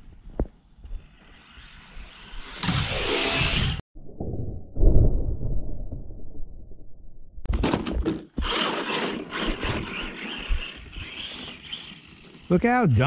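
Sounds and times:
toy truck electric motor running: 8.4 - 12.5
tyres churning through snow: 8.4 - 13.0.

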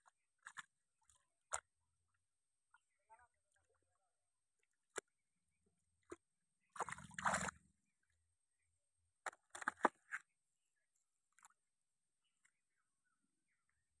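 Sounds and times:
water splashing: 6.0 - 7.6
sharp splashes: 6.7 - 7.6.

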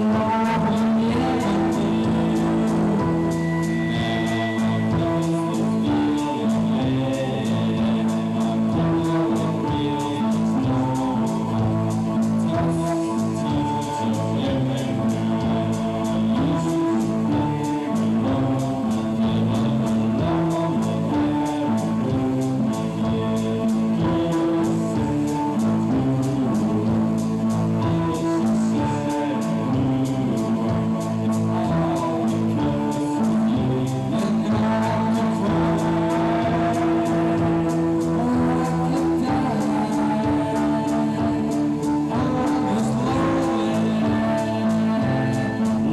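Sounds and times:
keyboard and electric guitar chords: 0.0 - 45.9
steady ticking beat: 0.0 - 45.9.

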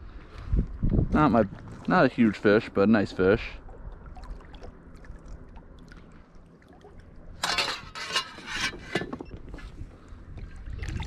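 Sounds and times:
light water lapping: 1.4 - 11.0
water splashing: 1.7 - 7.8, 10.4 - 11.0.

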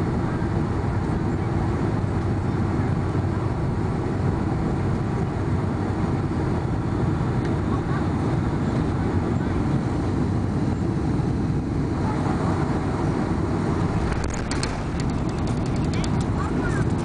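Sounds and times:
jet engines and wheels rumbling: 0.0 - 17.0
short rattles: 13.9 - 17.0.

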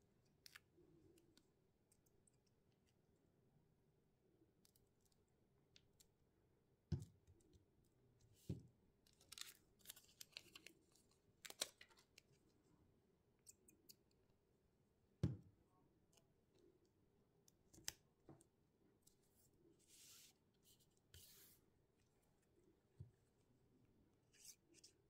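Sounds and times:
soft knocks on table: 15.2 - 15.5.

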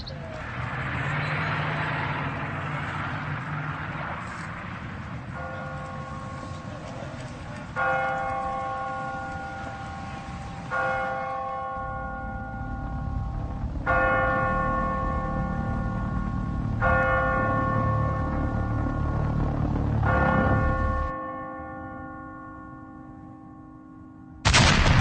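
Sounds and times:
bell tolling: 5.2 - 23.5
low rumble: 11.8 - 21.2.

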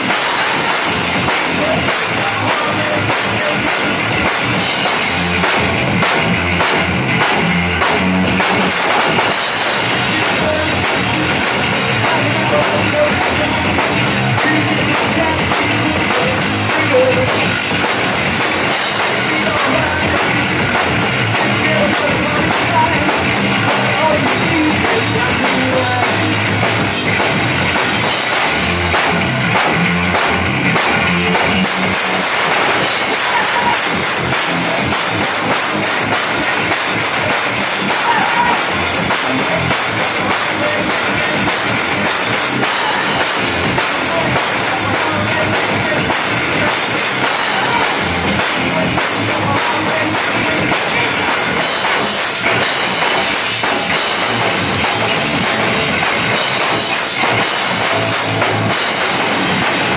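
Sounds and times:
drum kit: 0.0 - 59.9
electric bass guitar: 0.0 - 59.9.

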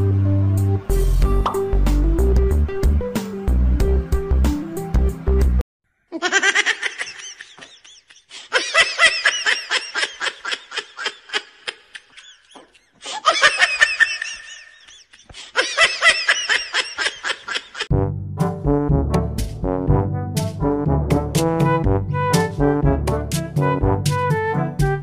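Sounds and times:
music track: 0.0 - 5.6, 17.9 - 25.0
person laughing hard: 6.1 - 17.9.

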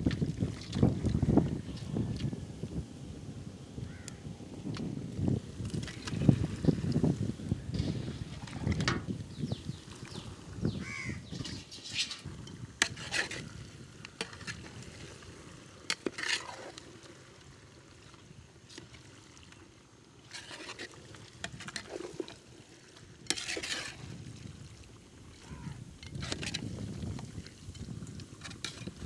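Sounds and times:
ladle scraping and knocking pot: 7.7 - 9.1, 11.4 - 13.4, 23.3 - 24.0.

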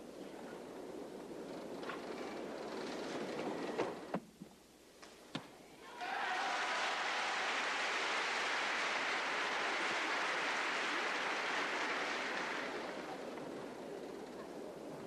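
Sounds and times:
crowd applauding: 6.0 - 14.4.

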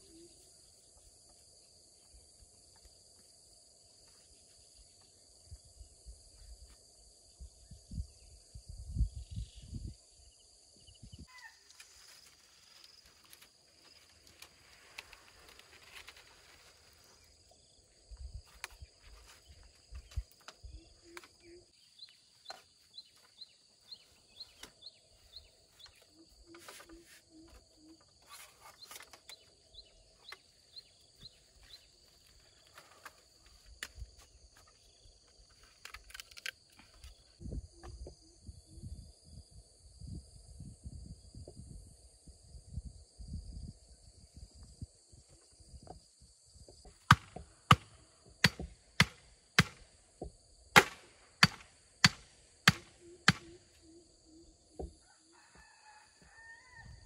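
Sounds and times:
high drone of insects: 0.0 - 57.0
bamboo poles clicking and rustling: 11.6 - 17.2, 18.4 - 21.6, 22.3 - 23.3, 24.0 - 24.8, 25.7 - 29.6, 30.2 - 37.4, 46.9 - 49.8, 50.8 - 53.6
machete striking bamboo: 47.0 - 49.8, 50.8 - 53.6.

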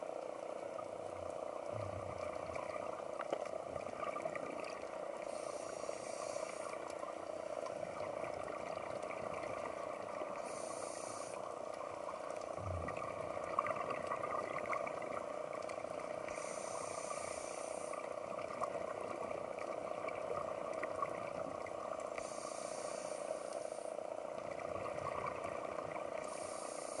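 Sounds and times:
underwater drone with crackle: 0.0 - 27.0
diver breathing through regulator: 5.3 - 6.8, 10.4 - 11.4, 16.3 - 18.0, 22.2 - 24.0, 26.2 - 27.0.

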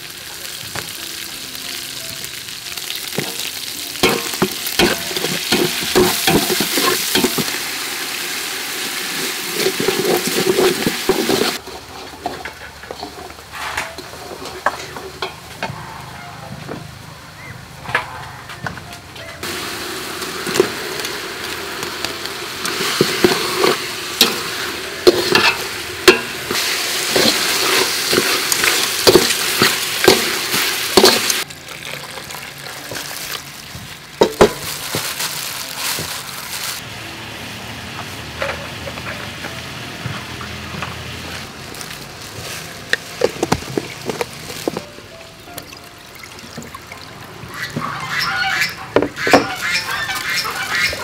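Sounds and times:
chicken sizzling in hot oil: 0.0 - 12.3, 19.4 - 45.0, 46.5 - 51.0
metal ladle clinking against pot: 25.1 - 26.6
water poured onto coconut: 31.4 - 33.6.

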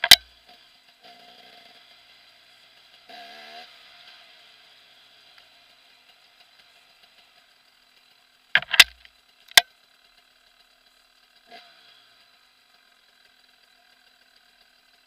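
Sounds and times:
camera housing knocks: 8.6 - 9.0.

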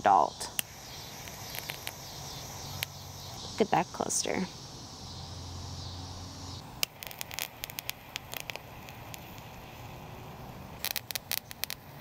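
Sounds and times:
butane torch flame hissing: 0.1 - 12.0
sharp click: 0.5 - 2.0
crackling pops of burning eggs: 0.5 - 3.6, 6.5 - 12.0.

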